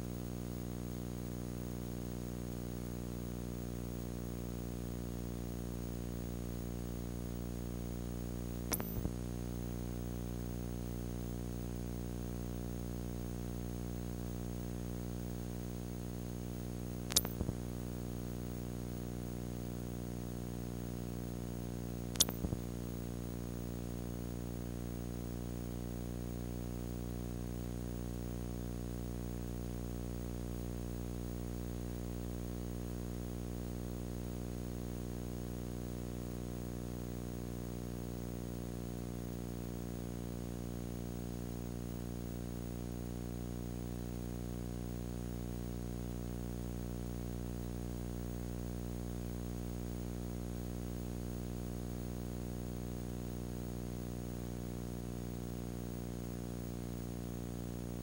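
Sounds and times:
buzzy electrical hum: 0:00.0 - 0:58.0
brief clicks: 0:08.7 - 0:09.2, 0:17.1 - 0:17.6, 0:22.1 - 0:22.6.

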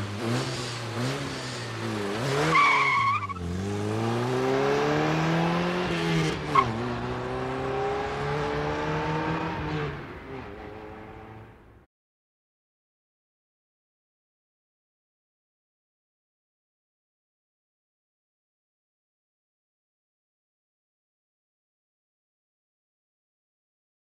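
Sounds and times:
tyre skid squealing: 0:01.5 - 0:03.5
sports car engine revving: 0:03.3 - 0:11.4.

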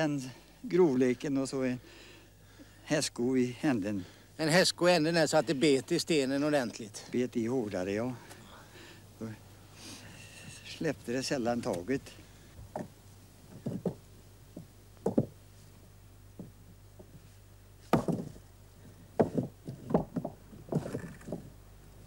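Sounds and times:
tools and stones knocking: 0:13.5 - 0:14.0, 0:14.6 - 0:15.4, 0:17.9 - 0:18.4, 0:19.2 - 0:21.5.

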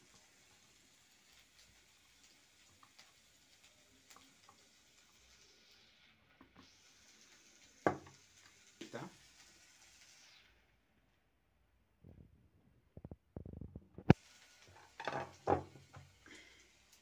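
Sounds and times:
faint steady hiss: 0:00.0 - 0:17.0
knocks on tabletop: 0:07.8 - 0:08.1.

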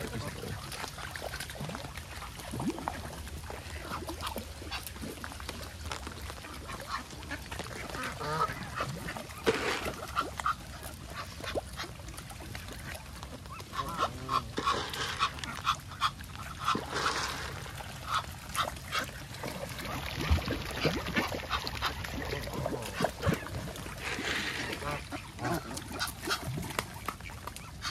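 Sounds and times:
ducks quacking: 0:06.4 - 0:12.0, 0:12.6 - 0:27.9
geese honking: 0:06.9 - 0:10.6, 0:13.5 - 0:18.7.

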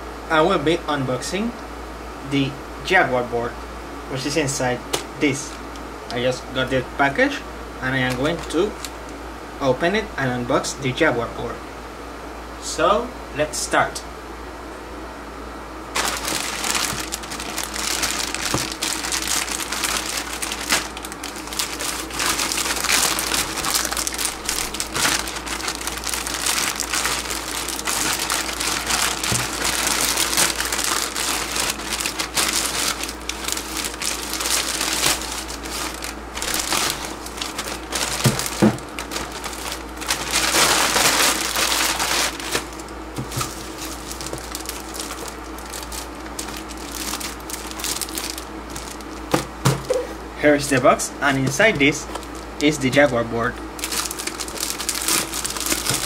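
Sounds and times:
plastic mailer bag crinkling: 0:05.2 - 0:05.8, 0:07.8 - 0:09.2, 0:15.9 - 0:50.0, 0:50.6 - 0:56.0.

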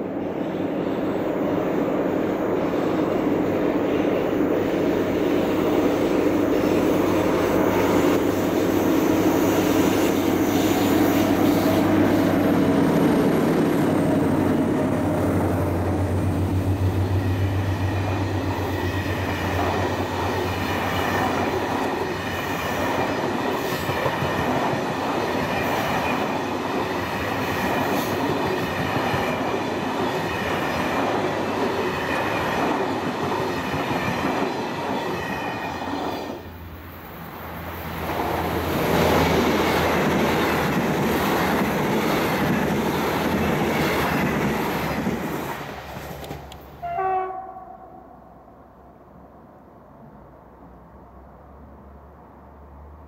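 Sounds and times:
train wheels on rails: 0:00.0 - 0:47.0
diesel train passing: 0:00.0 - 0:53.0
train horn blast: 0:46.8 - 0:48.3.

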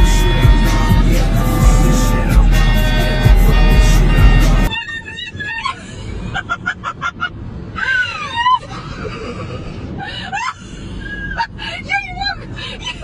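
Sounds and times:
background music: 0:00.0 - 0:04.7
road noise inside car: 0:00.0 - 0:13.0.

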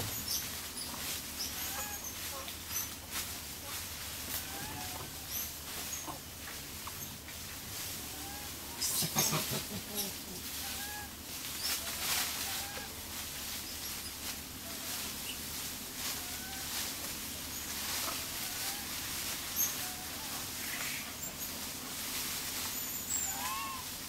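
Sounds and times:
steady hiss: 0:05.1 - 0:24.0.

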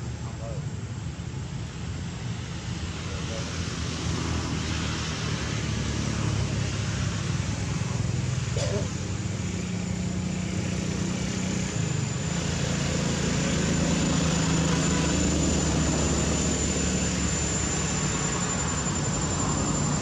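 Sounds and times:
low engine drone: 0:00.0 - 0:20.0
thin high steady tone: 0:14.6 - 0:20.0.

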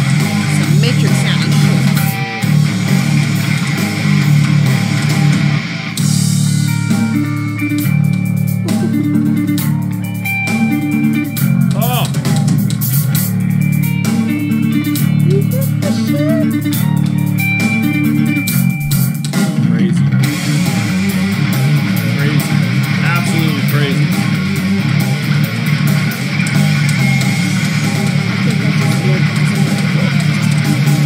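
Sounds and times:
bending guitar notes: 0:00.0 - 0:31.0
metal band playing: 0:00.0 - 0:31.0.

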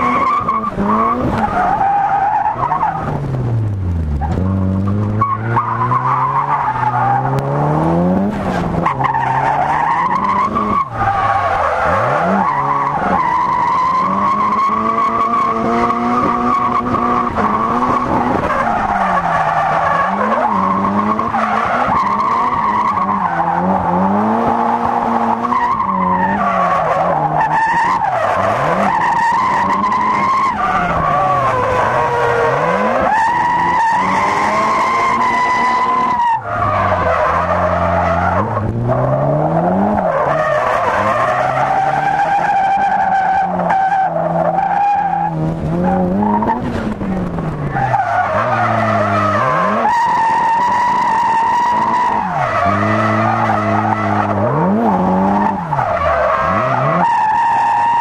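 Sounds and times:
turbo engine revving: 0:45.1 - 0:58.0.

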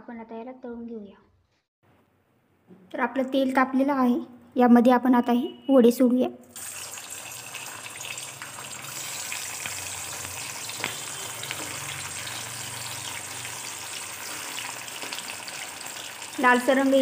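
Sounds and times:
dough sizzling in hot oil: 0:06.5 - 0:17.0.

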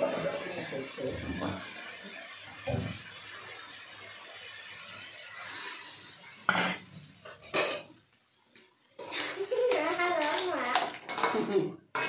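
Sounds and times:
crabs sizzling in a wok: 0:00.0 - 0:12.0
metal spatula scraping a wok: 0:09.0 - 0:12.0.

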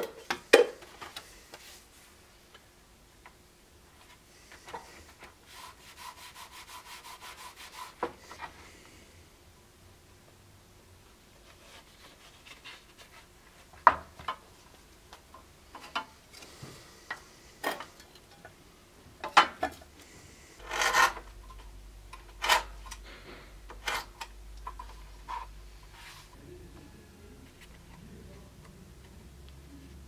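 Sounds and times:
hands rubbing leather: 0:05.5 - 0:08.0.

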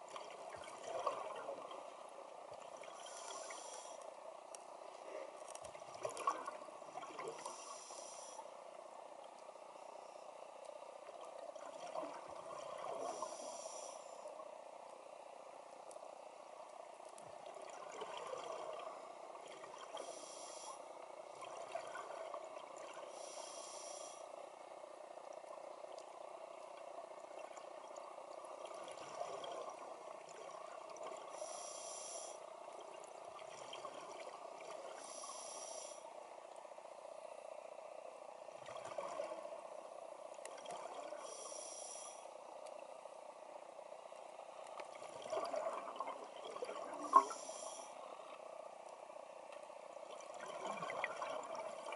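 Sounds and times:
steady underwater hiss: 0:00.0 - 0:51.9
scuba regulator inhalations hissing: 0:03.0 - 0:04.0, 0:07.3 - 0:08.5, 0:13.0 - 0:14.2, 0:19.9 - 0:20.9, 0:23.1 - 0:24.3, 0:31.3 - 0:32.4, 0:34.9 - 0:36.0, 0:41.1 - 0:42.3, 0:47.0 - 0:48.2.

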